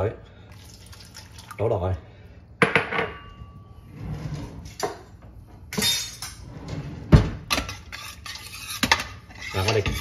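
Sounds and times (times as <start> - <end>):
kitchen handling noise: 4.6 - 10.0
drawer opening: 6.4 - 7.5.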